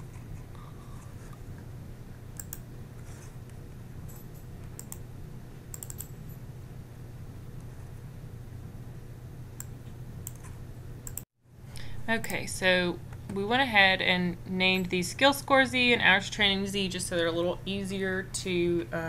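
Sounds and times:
low steady hum: 0.0s - 19.0s
mouse and keyboard clicks: 2.4s - 2.7s, 5.8s - 6.2s.

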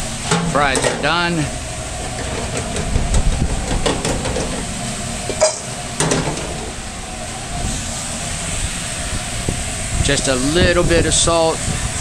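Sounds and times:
low steady rumble: 0.0s - 12.0s
metal knocks and clanks: 2.0s - 4.6s, 5.3s - 6.7s.

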